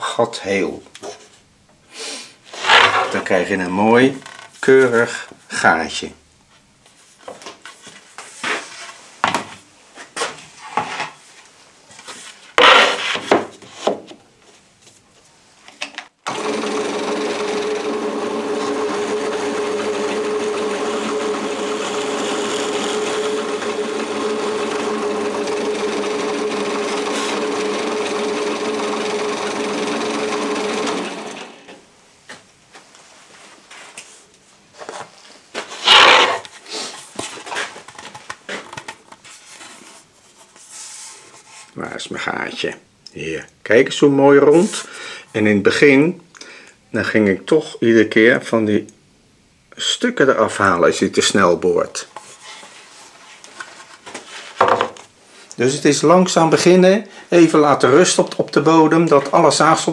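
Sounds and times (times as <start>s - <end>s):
board knocking and scraping: 2.5s - 3.3s, 12.6s - 14.2s, 35.6s - 36.4s, 53.6s - 55.1s
drill press humming: 16.3s - 31.8s.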